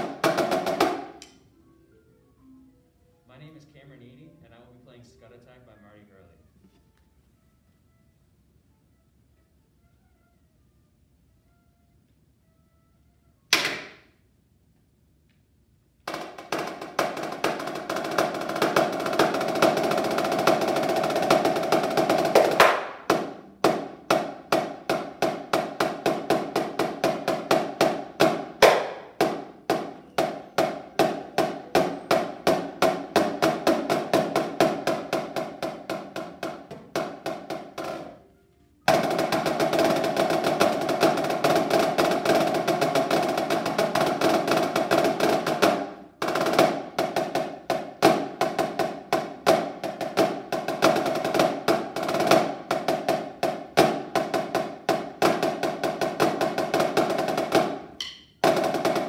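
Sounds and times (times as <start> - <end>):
snare drum solo: 0.0 - 1.3, 16.1 - 38.2, 38.9 - 59.0.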